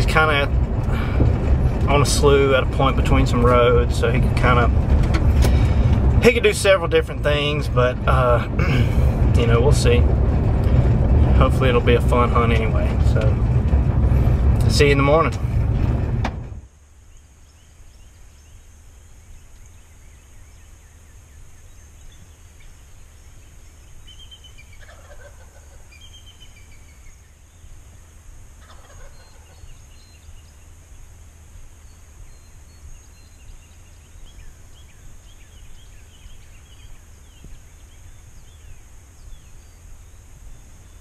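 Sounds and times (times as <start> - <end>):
steady low rumble: 0.0 - 41.0
small birds chirping: 16.8 - 41.0
turkey gobbling: 24.2 - 26.5, 28.6 - 29.8.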